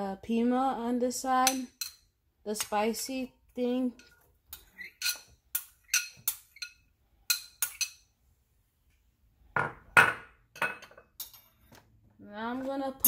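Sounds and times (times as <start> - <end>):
glass and utensils clinking: 4.0 - 8.0.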